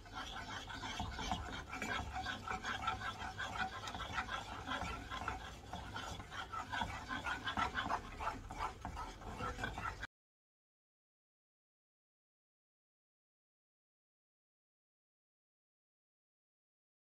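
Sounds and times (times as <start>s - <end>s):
wooden spoon scraping saucepan: 0.0s - 10.1s.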